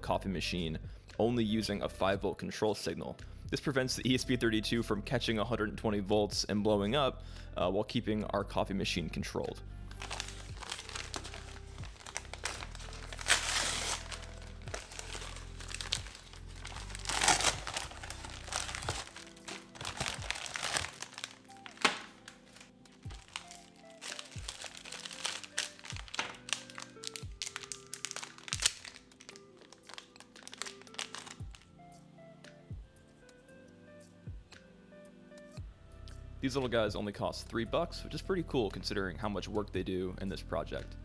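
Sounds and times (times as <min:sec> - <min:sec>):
background music: 0:00.0 - 0:41.0
plastic bags crinkling: 0:10.0 - 0:31.7.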